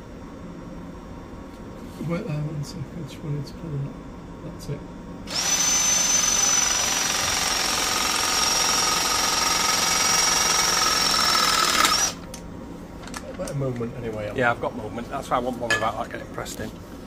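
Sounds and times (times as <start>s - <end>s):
press tool whine and motor drone: 5.3s - 12.3s.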